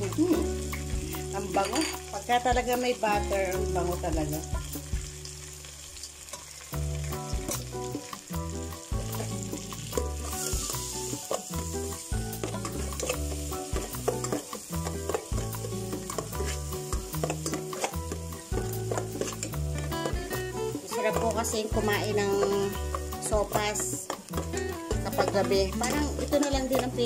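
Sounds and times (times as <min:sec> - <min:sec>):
butter sizzling in a pot: 0:00.0 - 0:27.0
metal spatula scraping a pot: 0:12.4 - 0:20.4.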